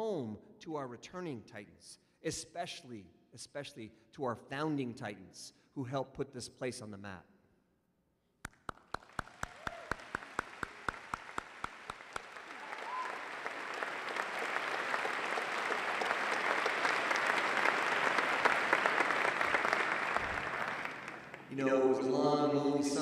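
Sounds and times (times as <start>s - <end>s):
person clapping: 8.4s - 21.6s
crowd applause: 8.7s - 22.0s.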